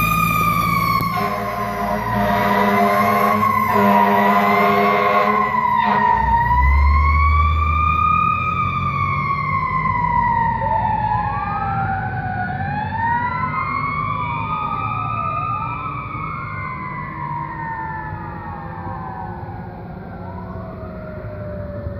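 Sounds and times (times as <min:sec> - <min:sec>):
wailing fire engine siren: 0:00.0 - 0:21.9
vehicle horn: 0:01.0 - 0:06.2.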